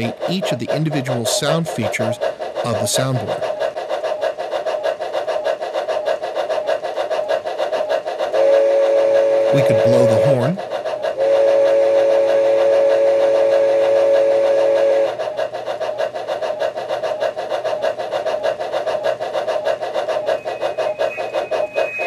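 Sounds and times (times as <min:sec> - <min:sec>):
steam locomotive chuff: 0:00.0 - 0:22.0
chime steam whistle: 0:20.4 - 0:22.0.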